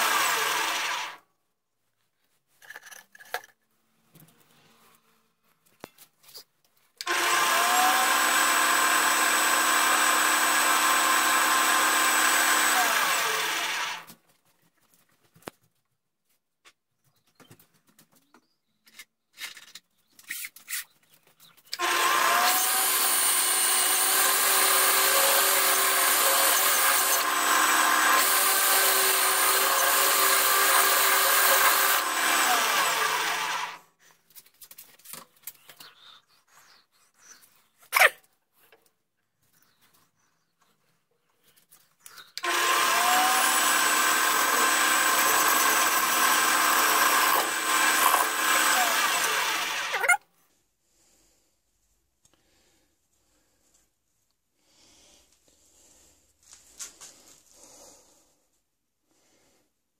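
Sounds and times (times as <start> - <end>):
clicks and knocks of handling metal: 2.6 - 3.6
metal lathe running: 21.8 - 33.7, 42.4 - 50.0.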